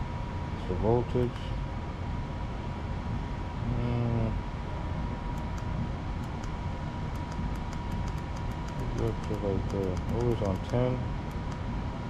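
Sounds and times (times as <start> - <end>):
low background rumble: 0.0 - 12.0
man humming: 3.6 - 4.4.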